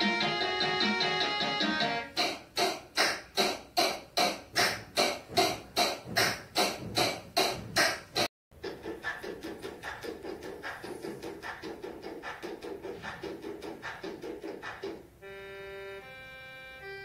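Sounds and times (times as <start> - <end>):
looped percussive hits: 0.0 - 15.2.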